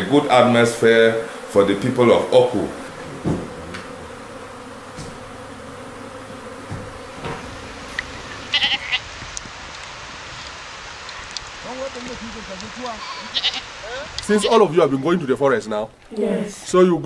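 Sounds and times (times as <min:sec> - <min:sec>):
faint steady hum: 0:00.0 - 0:11.7.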